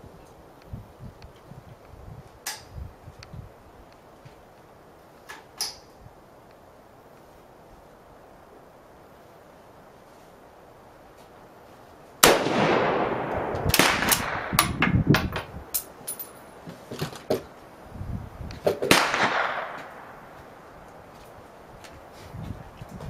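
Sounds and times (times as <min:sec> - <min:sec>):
rifle shot echoing: 0:12.2 - 0:14.8, 0:18.9 - 0:20.4.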